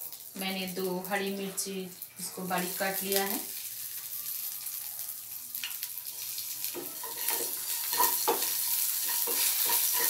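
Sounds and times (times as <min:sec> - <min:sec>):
spices sizzling in oil: 0:00.0 - 0:10.0
spatula scraping pan: 0:06.8 - 0:10.0.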